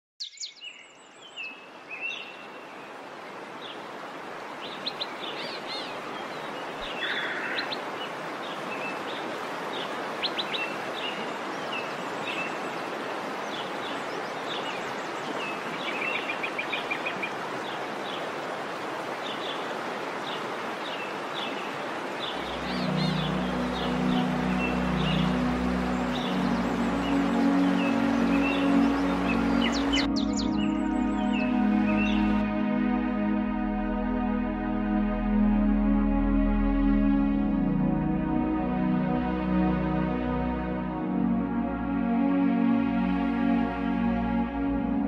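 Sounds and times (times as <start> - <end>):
songbirds chirping and trilling: 0.2 - 32.5
waterfall rushing: 1.8 - 33.1.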